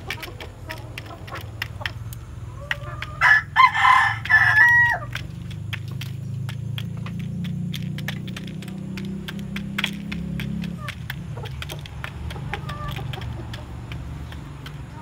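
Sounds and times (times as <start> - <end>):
chickens pecking feed: 0.0 - 15.0
rooster crowing: 3.1 - 5.1.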